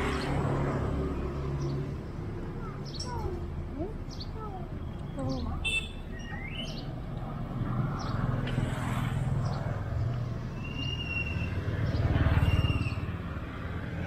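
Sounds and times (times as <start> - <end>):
vehicle engine rumbling: 0.0 - 14.0
bird chirps: 4.1 - 6.9, 10.6 - 13.1.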